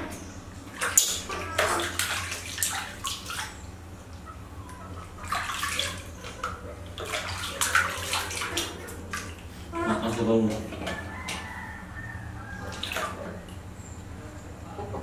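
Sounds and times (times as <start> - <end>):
water splashing in a plastic basin: 0.7 - 3.6, 5.1 - 11.5, 12.6 - 13.6.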